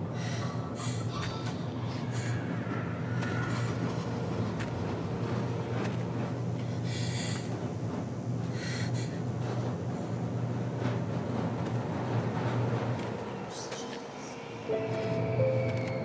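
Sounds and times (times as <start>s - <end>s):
woman's frightened breaths: 0.0s - 1.2s, 8.5s - 9.3s.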